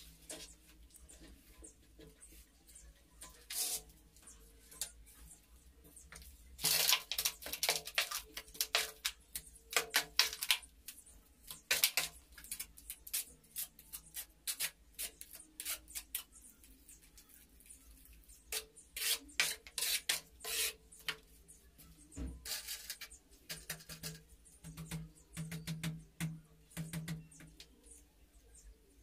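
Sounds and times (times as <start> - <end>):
trowel scraping mortar in a pan: 11.5 - 16.3, 18.5 - 21.2.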